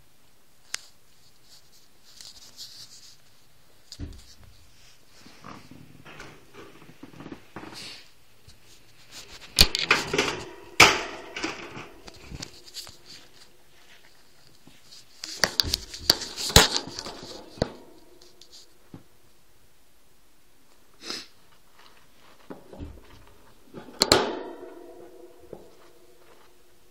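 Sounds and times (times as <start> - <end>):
knocks and clatter at hamster cage: 9.7 - 12.4, 23.8 - 25.7.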